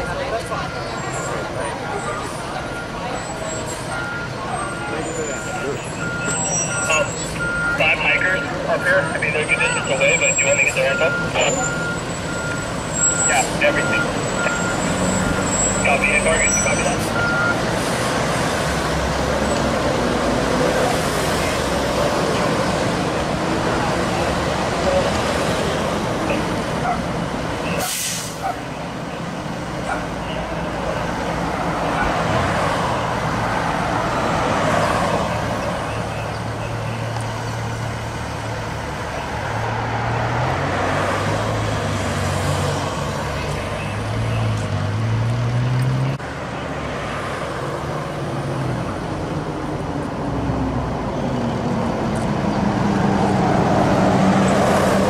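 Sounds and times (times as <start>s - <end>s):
heavy truck engine: 0.0s - 55.0s
road traffic: 0.0s - 55.0s
air brake hiss: 27.8s - 28.5s.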